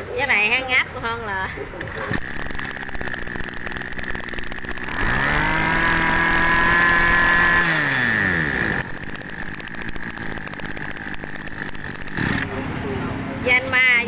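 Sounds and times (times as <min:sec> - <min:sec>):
brush cutter engine revving: 0:01.8 - 0:12.6.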